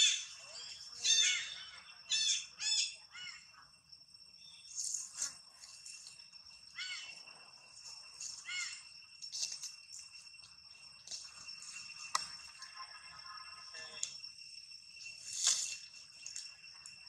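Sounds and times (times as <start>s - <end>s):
steady high ringing tone: 0.0s - 17.0s.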